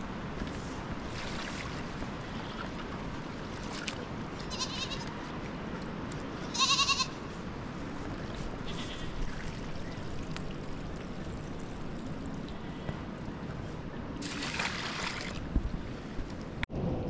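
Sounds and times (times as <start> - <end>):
goat bleating: 4.5 - 5.1, 6.5 - 7.2, 8.6 - 9.2.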